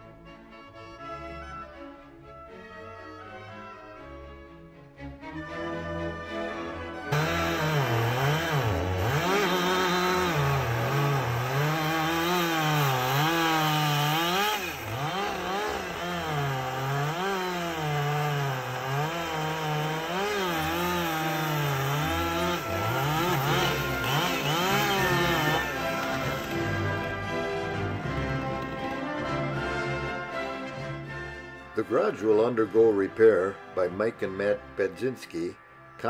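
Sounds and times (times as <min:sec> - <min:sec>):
chainsaw cutting wood: 0:07.1 - 0:29.1.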